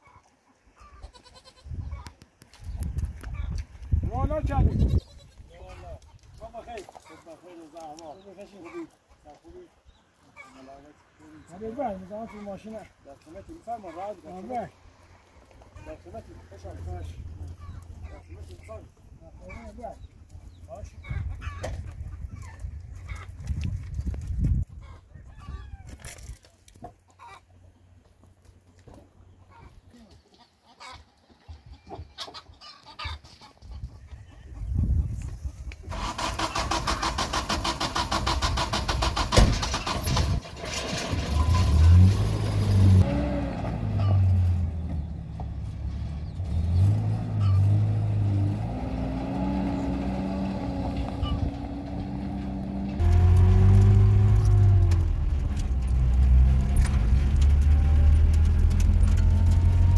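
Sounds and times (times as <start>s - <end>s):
farmyard animal sounds: 0.0s - 59.9s
truck engine revving: 35.9s - 59.9s.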